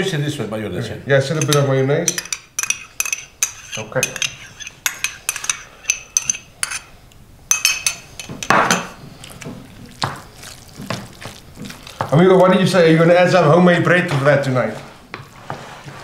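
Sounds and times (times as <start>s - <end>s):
metal spoon clinking on ceramic: 1.4s - 6.9s, 7.5s - 9.0s
wooden spoon stirring in bowl: 1.4s - 6.9s, 7.5s - 13.5s, 14.1s - 16.0s.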